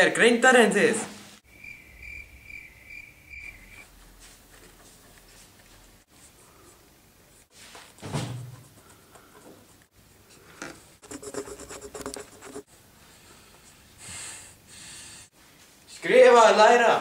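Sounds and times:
marker on whiteboard: 0:10.7 - 0:12.7
pen writing on paper: 0:11.0 - 0:12.7.

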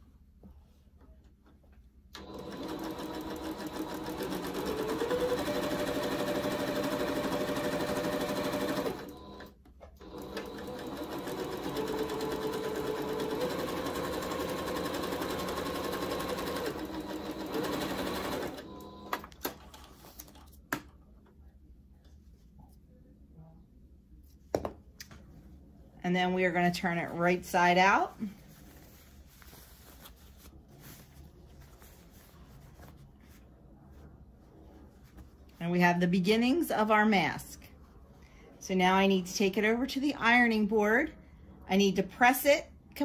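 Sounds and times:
sewing machine stitching: 0:02.2 - 0:19.2.

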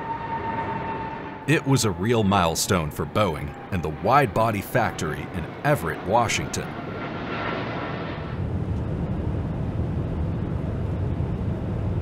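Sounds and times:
jet engines deep rumble: 0:00.0 - 0:12.0.

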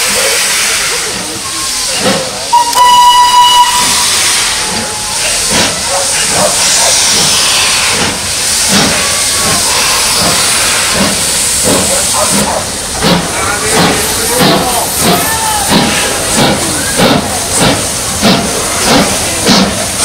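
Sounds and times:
short steam puffs: 0:00.0 - 0:20.0
steam hissing: 0:00.0 - 0:20.0
steam locomotive whistle: 0:02.5 - 0:05.4.

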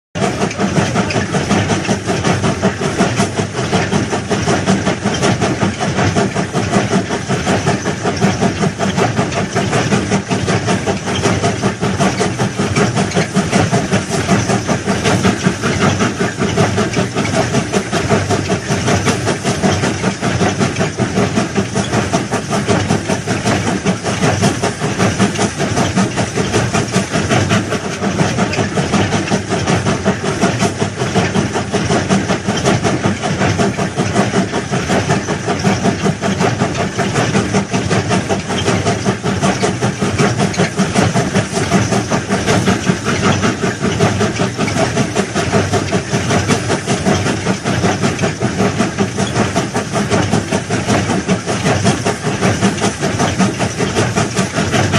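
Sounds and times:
track-laying machine engine throbbing: 0:00.2 - 0:54.9.

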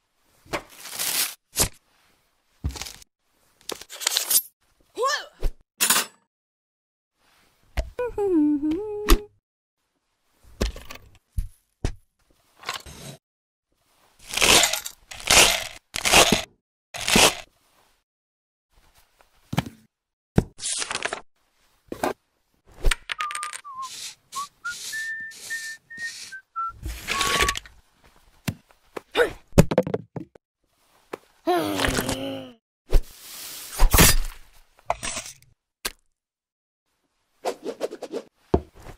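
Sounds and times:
whistled tone rising: 0:23.2 - 0:27.6.

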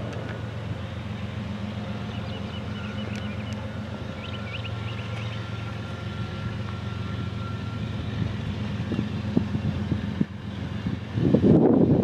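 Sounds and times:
wheels clicking on rail joints: 0:00.0 - 0:11.6
diesel locomotive engine drone: 0:00.0 - 0:12.0.

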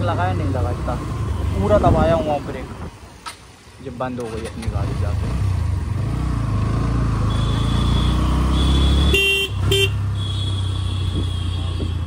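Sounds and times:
horn honks: 0:07.2 - 0:12.0.

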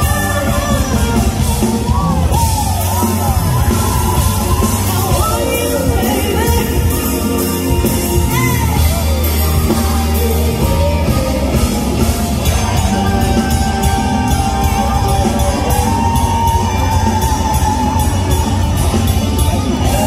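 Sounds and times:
backing music with steady beat: 0:00.0 - 0:20.0
woman singing into microphone: 0:04.8 - 0:07.3.

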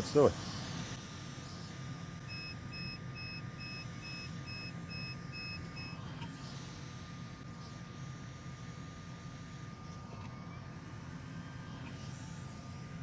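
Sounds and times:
hot air station hiss and whine: 0:00.0 - 0:13.0.

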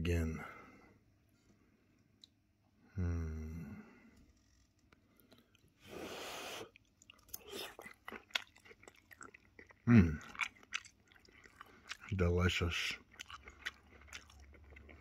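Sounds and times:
wet clicking chewing: 0:06.7 - 0:15.0.

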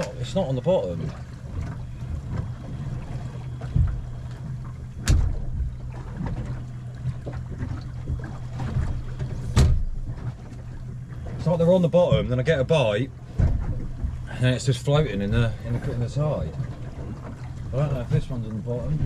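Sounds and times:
dull thump on hull: 0:00.0 - 0:19.0
steady low hum: 0:00.0 - 0:19.0
sharp knocks on hull: 0:01.2 - 0:10.6, 0:12.0 - 0:12.5, 0:13.2 - 0:14.3.

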